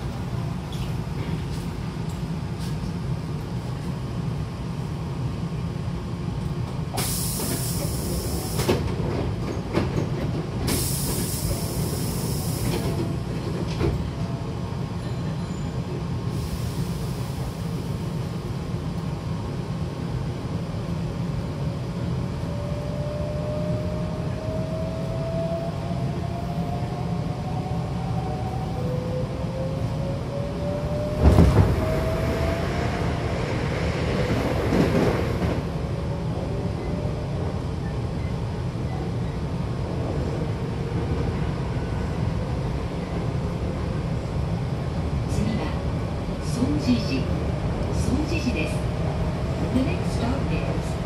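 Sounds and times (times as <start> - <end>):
standing train hum: 0.0 - 51.0
air hissing from doors: 6.9 - 8.8, 10.7 - 13.0, 16.3 - 18.0
train doors thudding shut: 31.2 - 31.9.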